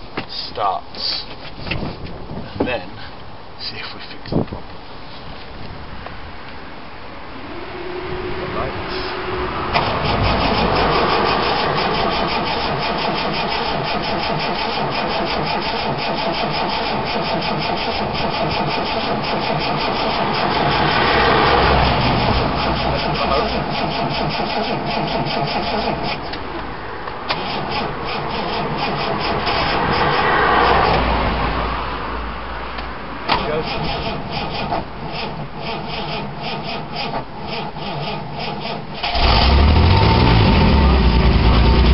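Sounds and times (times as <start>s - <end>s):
starter motor cranking: 9.8s - 21.0s, 33.6s - 40.8s.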